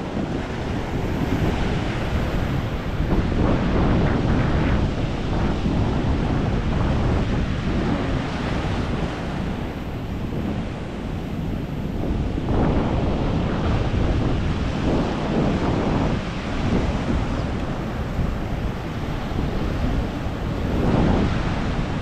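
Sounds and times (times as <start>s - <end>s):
ocean surf breaking: 0.0s - 22.0s
wind buffeting microphone: 0.0s - 22.0s.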